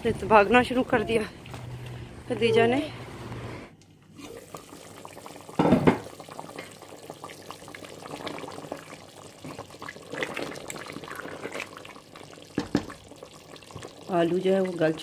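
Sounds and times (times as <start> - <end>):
water running: 4.2 - 15.0.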